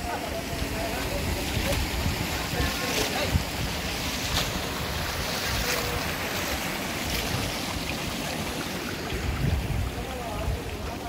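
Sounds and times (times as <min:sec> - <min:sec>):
flowing mountain stream: 0:00.0 - 0:11.0
wind buffeting microphone: 0:00.1 - 0:11.0.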